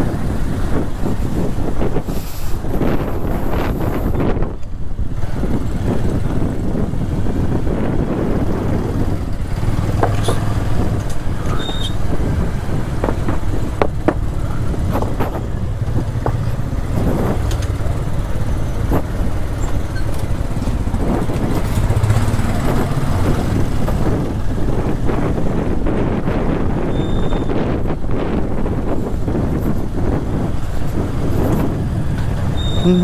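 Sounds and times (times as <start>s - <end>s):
vehicle engine rumbling: 0.0s - 33.0s
short knocks and rattles: 9.8s - 11.6s, 13.0s - 17.8s.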